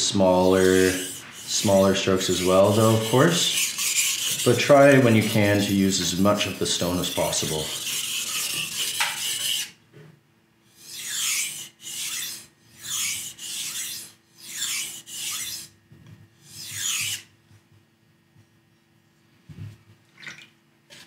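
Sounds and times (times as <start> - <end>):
knife scraping on whetstone: 0.4 - 9.8, 10.7 - 15.7, 16.4 - 17.3.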